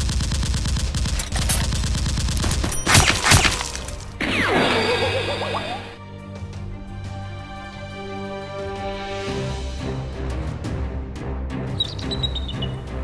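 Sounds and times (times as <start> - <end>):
automatic gunfire sound effect: 0.0 - 4.4
falling wavering tones: 4.2 - 6.0.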